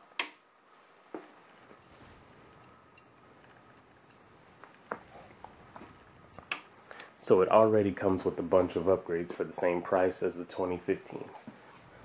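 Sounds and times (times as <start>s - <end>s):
high-pitched turn-signal beep: 0.2s - 6.6s.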